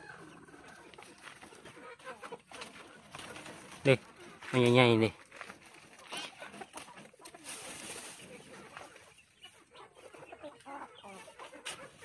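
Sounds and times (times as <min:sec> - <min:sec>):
chickens clucking: 0:00.0 - 0:12.0
leaves and branches rustling: 0:02.5 - 0:09.6.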